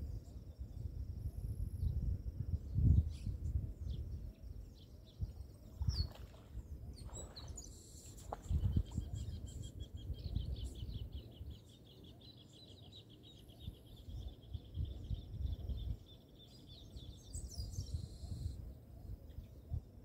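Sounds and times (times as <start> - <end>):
wind gusting on microphone: 0.0 - 11.6, 13.6 - 20.0
birds chirping: 2.9 - 20.0.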